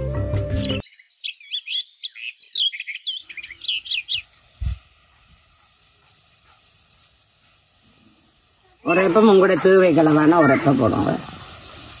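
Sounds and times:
birds chirping: 0:00.0 - 0:06.7, 0:07.4 - 0:11.5
pot sizzling over fire: 0:03.2 - 0:12.0.

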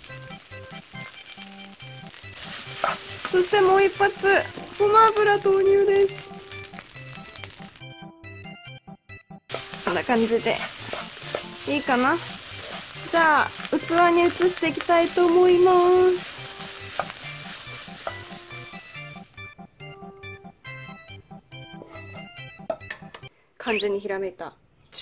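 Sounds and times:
spatula stirring in a pan: 0:00.0 - 0:07.8, 0:09.5 - 0:19.3
rice sizzling in a frying pan: 0:00.0 - 0:07.9, 0:09.5 - 0:19.3.

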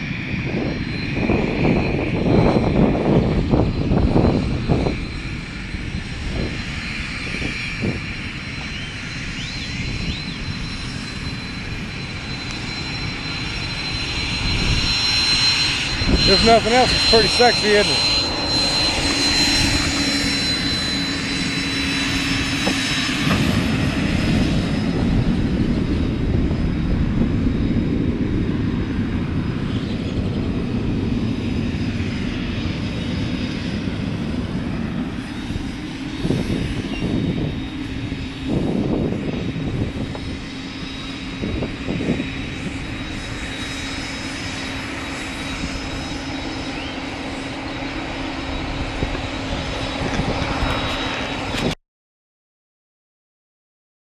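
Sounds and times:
aircraft engine drone: 0:00.0 - 0:51.8
high thin whine: 0:15.6 - 0:23.4.

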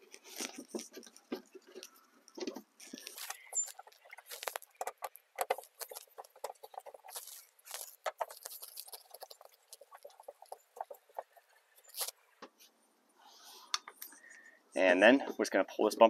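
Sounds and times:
screwdriver turning screw in plastic: 0:02.8 - 0:12.2.

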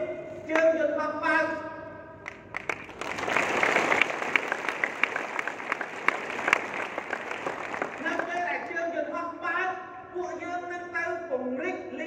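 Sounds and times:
single sharp claps: 0:02.2 - 0:08.8
audience applauding: 0:02.3 - 0:08.8.

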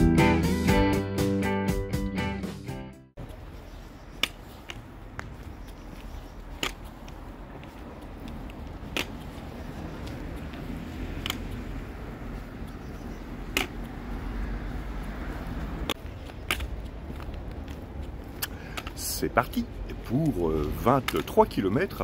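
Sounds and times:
town street rumble: 0:00.0 - 0:22.0
sharp clicks: 0:04.1 - 0:14.0, 0:15.8 - 0:19.0, 0:21.0 - 0:21.5.

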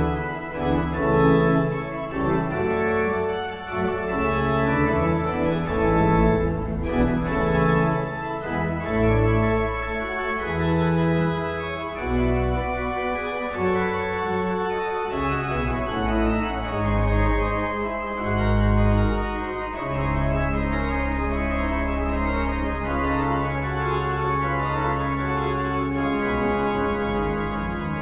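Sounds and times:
organ playing sustained chords: 0:00.0 - 0:28.0
low organ bass note: 0:04.2 - 0:10.5.

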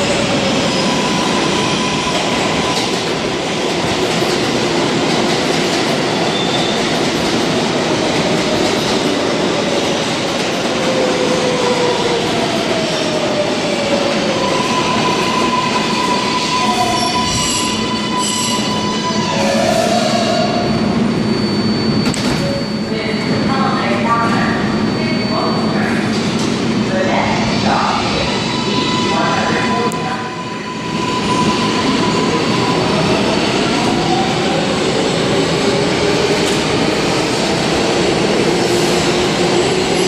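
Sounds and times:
train wheels rumbling on rail: 0:00.0 - 0:21.4, 0:25.7 - 0:40.0
wheels and brakes squealing: 0:14.4 - 0:22.8, 0:30.3 - 0:32.9.

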